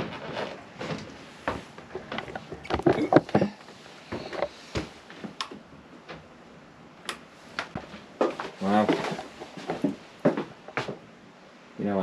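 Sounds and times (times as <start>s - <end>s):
clicks and knocks of handling: 0.2s - 6.2s.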